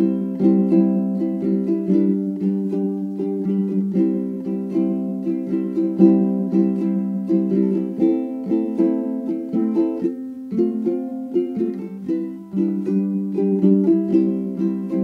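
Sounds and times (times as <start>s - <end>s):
plucked string instrument tune: 0.0s - 15.0s.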